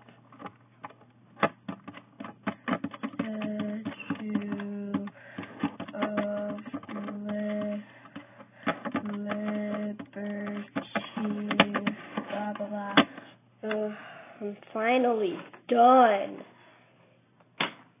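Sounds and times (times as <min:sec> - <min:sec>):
on-screen keyboard clicks: 0:08.8 - 0:11.9.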